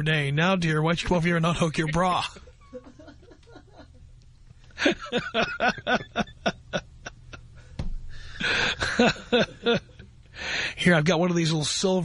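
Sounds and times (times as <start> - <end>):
person laughing hard: 4.8 - 7.7, 8.4 - 10.1.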